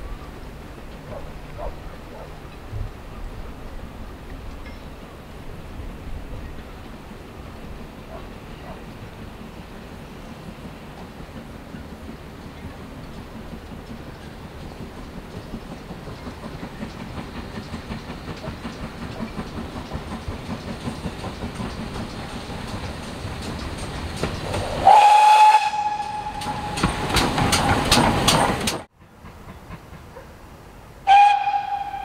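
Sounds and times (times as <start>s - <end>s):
steam locomotive running: 0.0s - 32.0s
steam locomotive whistle: 24.7s - 27.0s, 31.0s - 32.0s.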